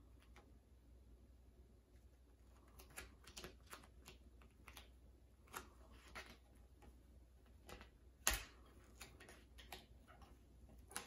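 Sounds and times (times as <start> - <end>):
vinyl decal clicks and crackles: 2.5 - 11.0.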